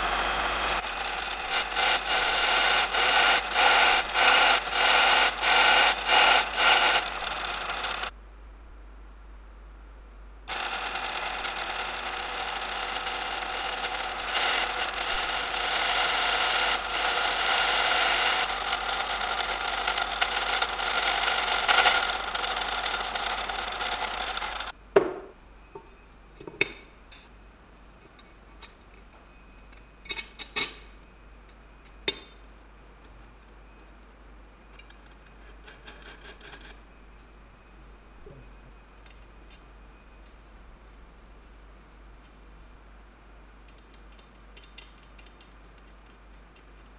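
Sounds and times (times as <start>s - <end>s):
drill press cutting steel: 0.0s - 8.1s, 10.5s - 24.7s.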